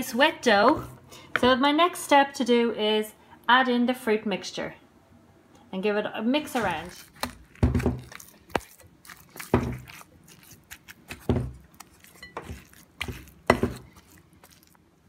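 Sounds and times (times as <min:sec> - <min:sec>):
spoon scraping glass bowl: 0:11.8 - 0:14.8.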